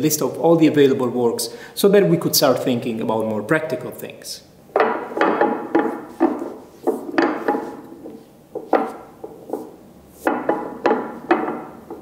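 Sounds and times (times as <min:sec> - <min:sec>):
cone clacking on stone table: 0:04.7 - 0:12.0.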